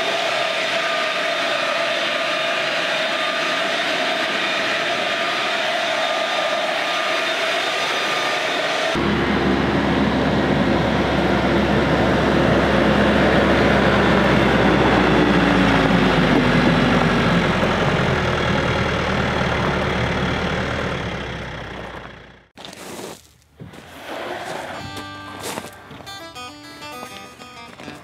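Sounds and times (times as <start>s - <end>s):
tractor diesel engine running: 8.6s - 22.6s, 24.6s - 28.0s.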